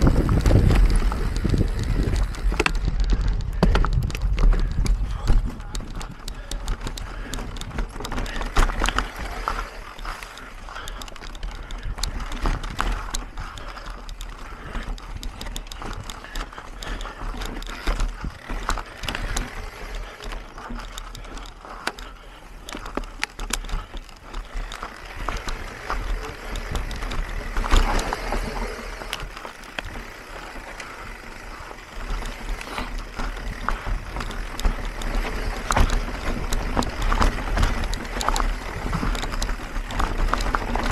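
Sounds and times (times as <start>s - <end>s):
steady low rumble: 0.0s - 13.7s
bike clicks and rattles: 0.0s - 40.9s.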